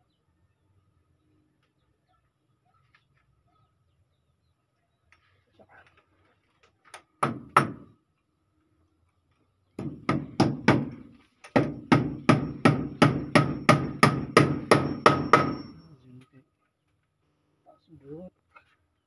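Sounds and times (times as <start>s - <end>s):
hammer driving nails into wood: 6.9s - 7.9s, 9.8s - 15.8s.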